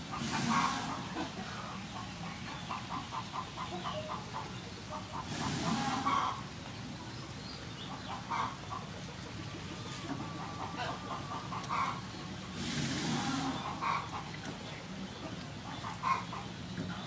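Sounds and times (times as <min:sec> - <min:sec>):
poultry calling: 0:00.1 - 0:01.2, 0:02.2 - 0:06.4, 0:07.9 - 0:08.9, 0:10.3 - 0:14.3, 0:15.7 - 0:16.5.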